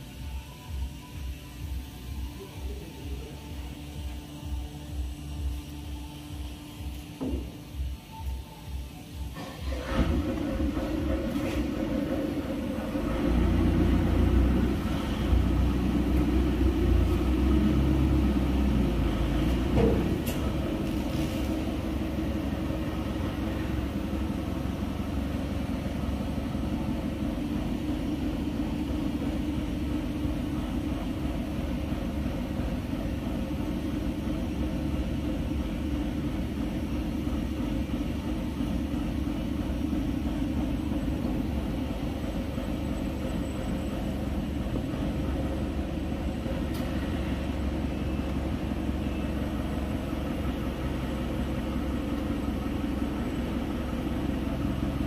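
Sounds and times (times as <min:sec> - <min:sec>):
knitting machine rumbling and clattering: 0:09.4 - 0:48.9.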